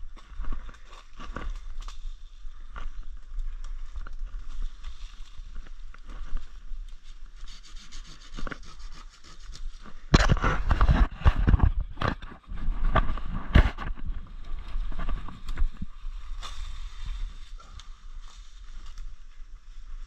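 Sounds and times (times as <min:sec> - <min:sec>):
branches scraping: 0:00.0 - 0:20.0
brush and dry leaves rustling: 0:00.0 - 0:20.0
twigs snapping: 0:00.1 - 0:07.0.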